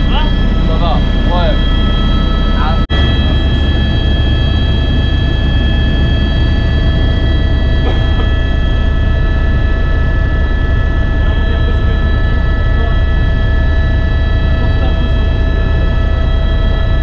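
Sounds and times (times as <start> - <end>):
helicopter rotor and engine rumble: 0.0 - 17.0
high whining tones: 0.0 - 17.0.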